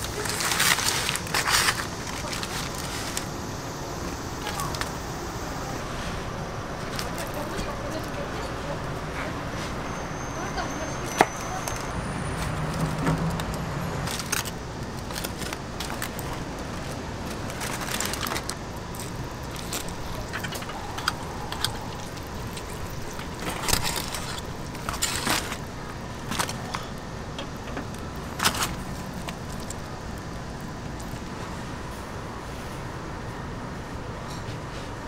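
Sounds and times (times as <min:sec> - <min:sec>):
aluminium foil crinkling: 0:00.0 - 0:05.0, 0:10.4 - 0:31.3.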